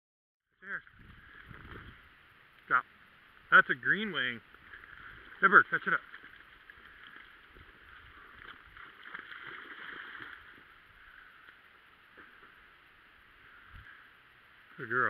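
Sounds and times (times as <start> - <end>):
dog splashing in water: 5.8 - 10.7.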